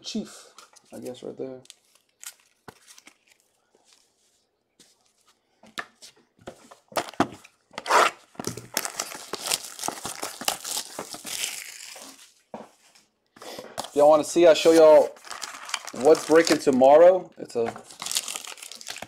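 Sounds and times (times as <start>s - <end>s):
plastic wrap crinkling: 7.9s - 12.4s, 13.9s - 17.1s, 17.7s - 19.0s.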